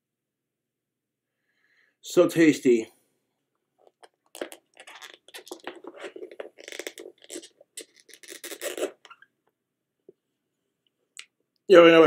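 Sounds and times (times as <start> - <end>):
plastic lid crackling and scraping: 3.8 - 9.3.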